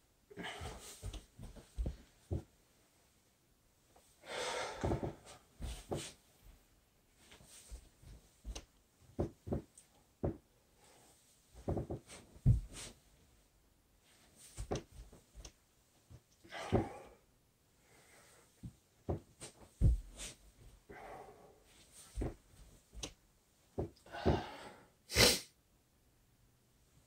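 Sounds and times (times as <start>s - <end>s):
man breathing heavily: 0.3s - 2.4s, 4.2s - 6.1s, 16.5s - 18.6s, 19.8s - 22.4s, 24.0s - 25.0s
thumps on carpeted floor: 1.0s - 2.5s, 7.7s - 10.4s, 11.6s - 12.9s, 14.6s - 15.0s, 18.6s - 20.7s, 22.2s - 23.1s.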